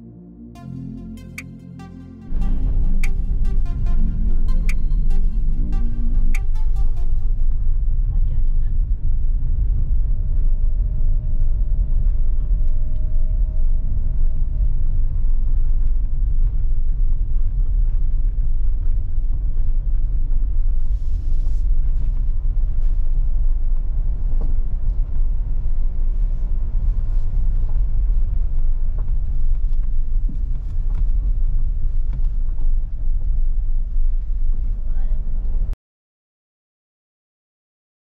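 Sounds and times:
van engine and tyres rumbling: 0:07.4 - 0:35.8.

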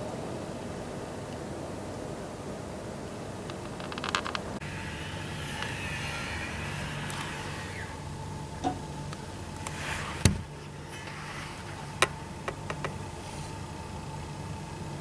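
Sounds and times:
rail grinder running: 0:04.6 - 0:08.4.

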